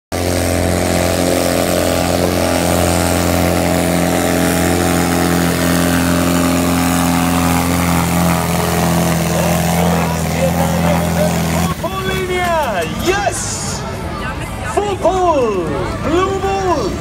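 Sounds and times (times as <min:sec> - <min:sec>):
tractor diesel engine under load: 0:00.1 - 0:16.1.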